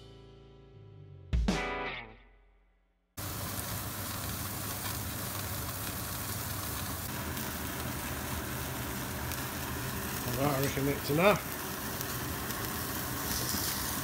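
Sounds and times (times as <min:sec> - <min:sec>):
guitar chord: 0:00.0 - 0:02.3
meat sizzling on a gas barbecue: 0:03.2 - 0:14.0.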